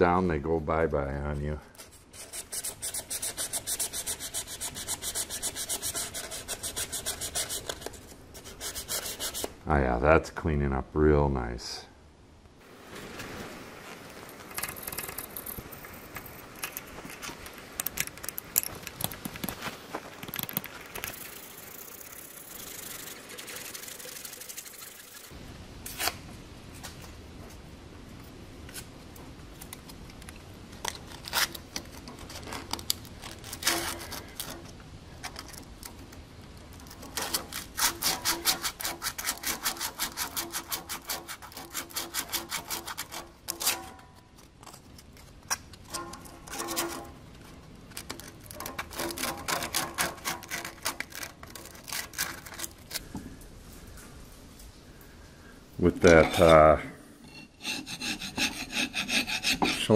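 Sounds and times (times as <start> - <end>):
sandpaper rubbing on metal: 1.8 - 9.6, 37.2 - 43.8, 56.0 - 59.9.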